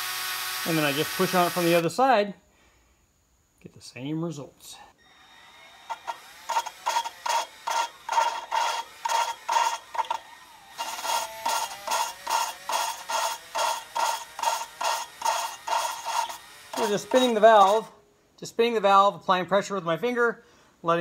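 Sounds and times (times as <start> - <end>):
drill whining in short pulses: 0.0 - 1.8, 5.0 - 18.0
gritty valve grinding: 5.9 - 18.0.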